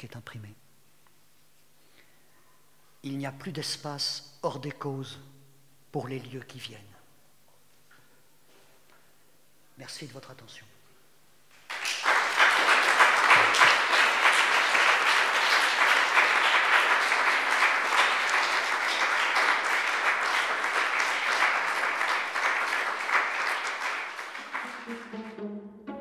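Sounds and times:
audience applauding: 11.5s - 25.4s.

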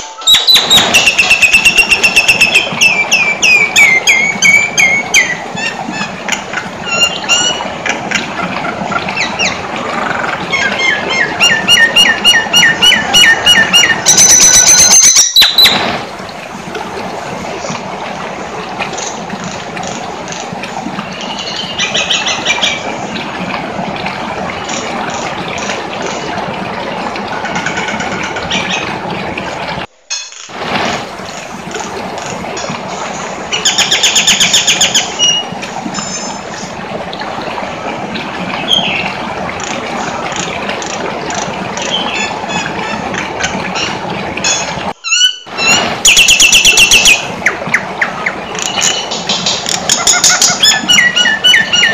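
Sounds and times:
bird giving high whistled calls: 0.1s - 5.4s.

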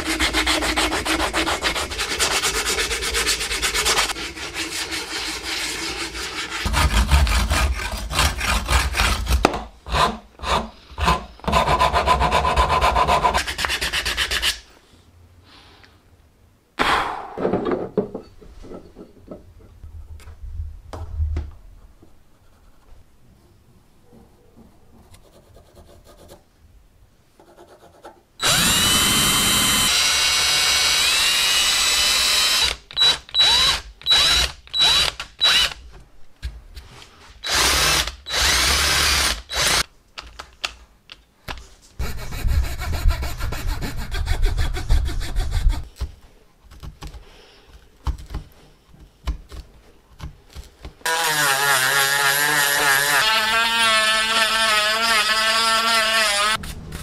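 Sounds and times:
rotary tool sanding wood: 0.0s - 9.2s
electric drill boring into wood: 28.4s - 35.8s, 37.4s - 39.8s.

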